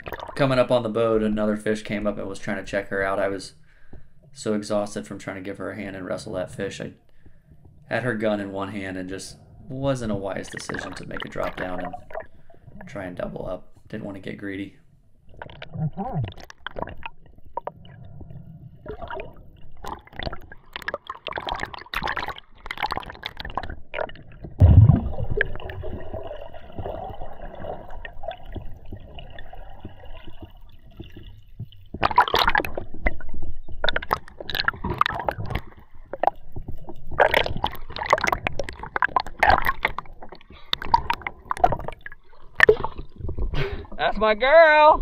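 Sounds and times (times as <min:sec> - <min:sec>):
water gurgling and splashing: 0:00.0 - 0:03.2, 0:08.0 - 0:13.6, 0:15.2 - 0:44.8
heavy underwater thump: 0:24.5 - 0:26.1.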